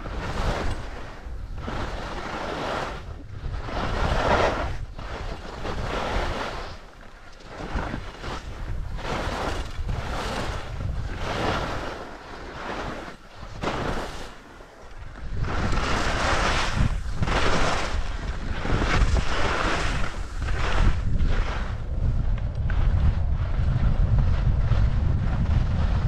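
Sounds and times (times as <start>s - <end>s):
wind rushing over microphone: 0.0s - 26.0s
skis hissing over snow: 15.5s - 21.8s.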